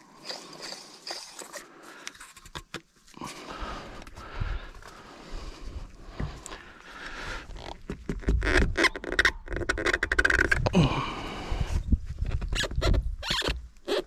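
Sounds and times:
scraping creaking and squeaking: 7.4s - 10.7s, 12.1s - 14.0s.

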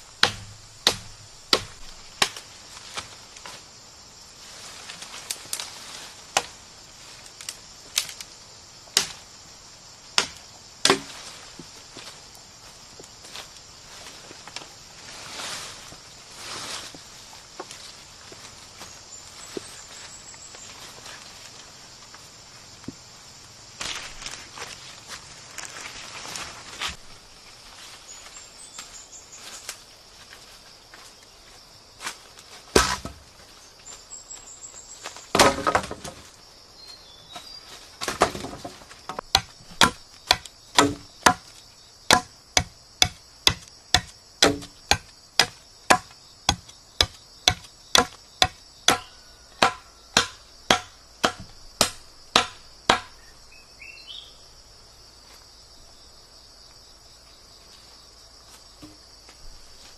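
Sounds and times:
insects buzzing: 0.0s - 59.9s
machete chopping wood: 0.2s - 2.4s, 9.0s - 9.2s, 10.2s - 11.2s, 32.7s - 33.2s, 35.3s - 36.2s, 38.0s - 41.5s, 42.1s - 53.2s.

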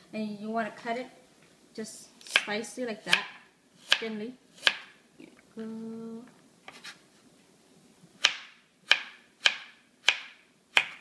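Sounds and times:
knife chopping on plastic board: 8.2s - 11.0s.

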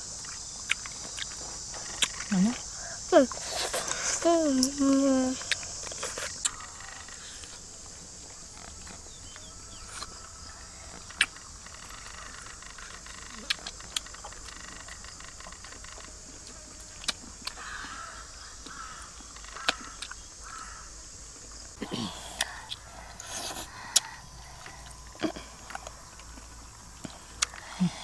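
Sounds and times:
people chewing: 0.0s - 20.7s, 21.4s - 28.0s
steady high hiss: 0.0s - 28.0s.

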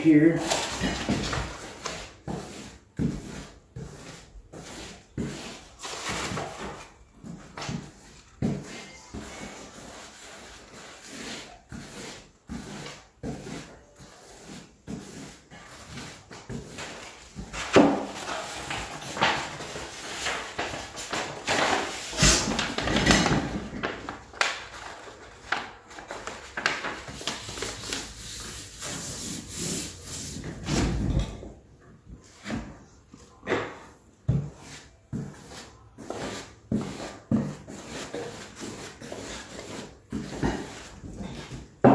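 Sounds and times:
paper rustling and crinkling: 15.7s - 29.4s.

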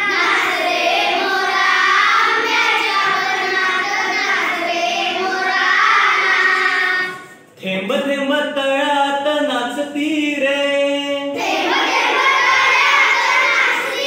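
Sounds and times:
children singing in chorus: 0.0s - 7.4s, 11.4s - 14.0s
teacher singing: 0.0s - 14.0s.

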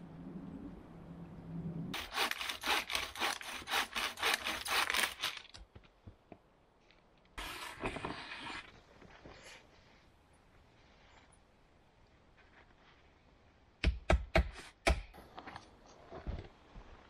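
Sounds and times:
hand saw cutting wood: 2.0s - 5.4s.

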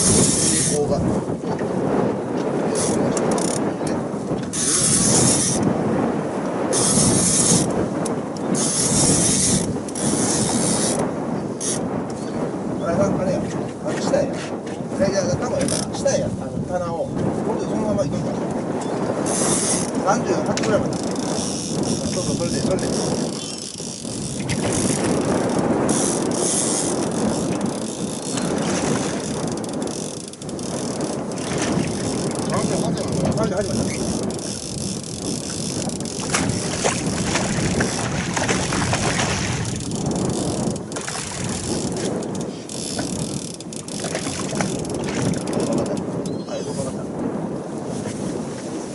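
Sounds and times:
fishing reel winding in line: 0.0s - 0.8s, 2.8s - 3.7s, 4.5s - 5.6s, 6.7s - 7.7s, 8.6s - 11.0s, 11.6s - 11.8s, 19.2s - 20.0s, 20.8s - 38.1s, 39.5s - 46.0s.

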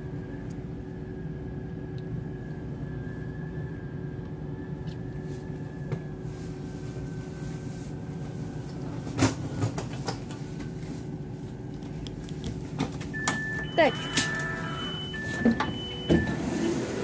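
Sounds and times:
train rumble: 0.0s - 17.0s
faint high whine: 13.2s - 16.8s.

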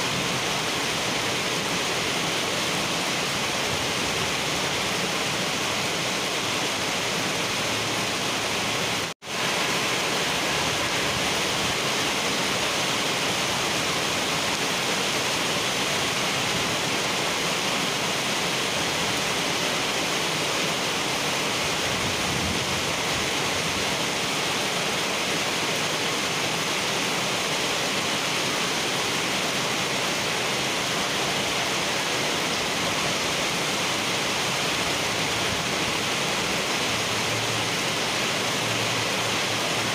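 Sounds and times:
heavy rain on asphalt: 0.0s - 39.9s.

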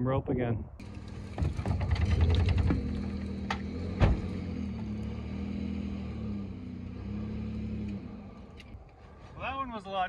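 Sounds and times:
pickup truck engine under load: 0.8s - 8.8s
loud thump: 3.9s - 4.4s.

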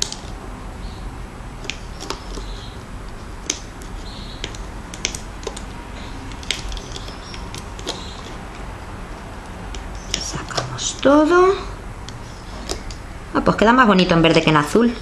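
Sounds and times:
rubber bands clicking on plastic pegs: 3.4s - 5.7s.

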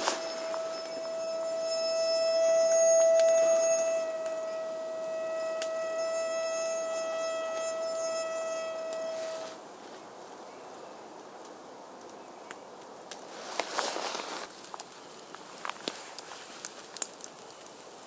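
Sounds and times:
kettle whistling: 0.0s - 9.6s
faint fire crackle: 0.0s - 18.0s.

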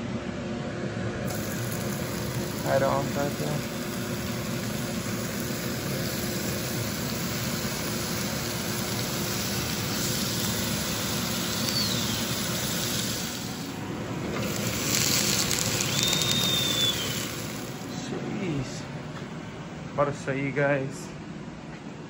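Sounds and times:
chicken sizzling in a frying pan: 1.3s - 17.9s.

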